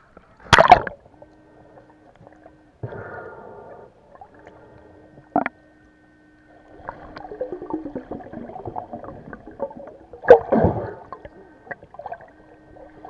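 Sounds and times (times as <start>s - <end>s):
steady low hum: 0.0s - 13.0s
underwater gurgling and sloshing: 0.0s - 13.0s
crackle of bubbles: 6.6s - 13.0s.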